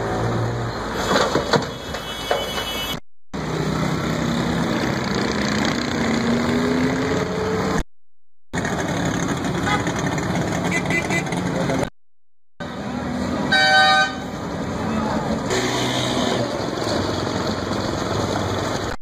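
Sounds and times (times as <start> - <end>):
road traffic: 0.0 - 7.9, 8.5 - 12.0, 12.6 - 19.0
wheel loader diesel engine: 8.6 - 11.9, 14.3 - 19.0.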